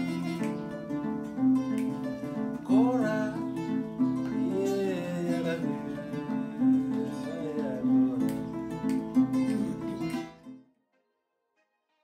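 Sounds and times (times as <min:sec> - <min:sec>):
acoustic guitar playing: 0:00.0 - 0:11.7
person singing: 0:02.6 - 0:10.3.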